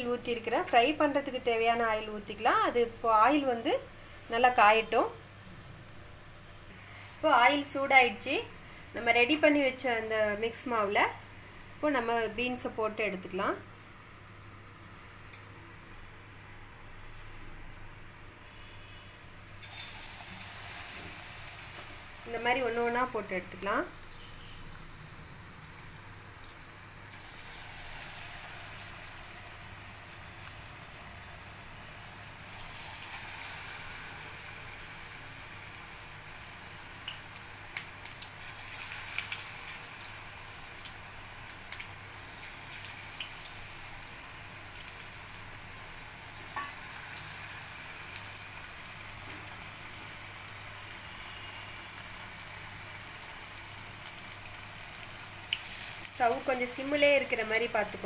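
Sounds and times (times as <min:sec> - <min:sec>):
food deep-frying in hot oil: 0:00.0 - 0:58.0.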